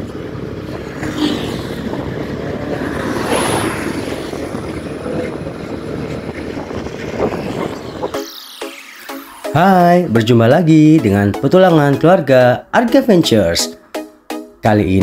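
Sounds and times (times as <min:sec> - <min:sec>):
wind noise: 0:00.0 - 0:08.4
road traffic: 0:00.0 - 0:15.0.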